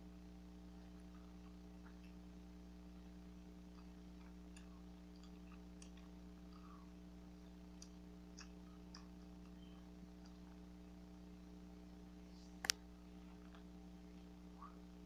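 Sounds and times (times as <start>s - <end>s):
steady low hum: 0.0s - 15.0s
gum chewing mouth clicks: 0.8s - 2.3s, 3.4s - 10.6s.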